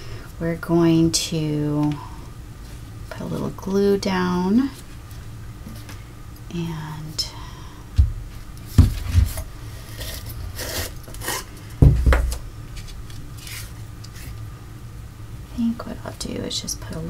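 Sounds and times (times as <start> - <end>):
dull knocks on wooden table: 11.8 - 12.4.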